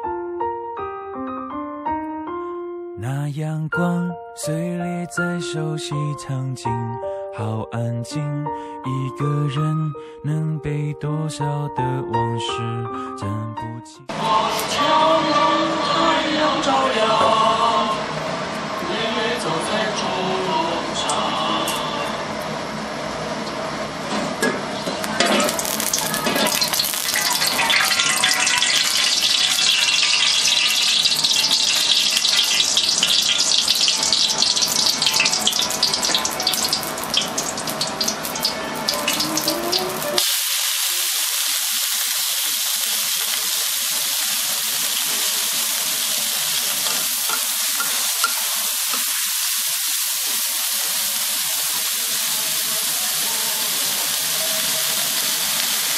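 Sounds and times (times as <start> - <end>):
stems sizzling in wok: 14.1 - 17.2, 25.0 - 55.9
hot oil crackling in wok: 25.0 - 55.9.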